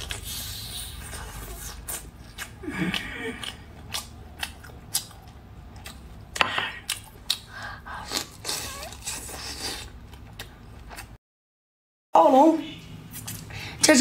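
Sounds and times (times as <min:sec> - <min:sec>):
biting and wet chewing: 0:00.0 - 0:11.2.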